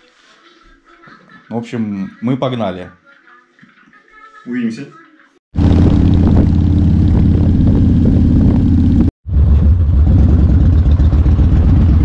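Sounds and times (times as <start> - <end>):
motorcycle engine rumbling: 5.6 - 12.0.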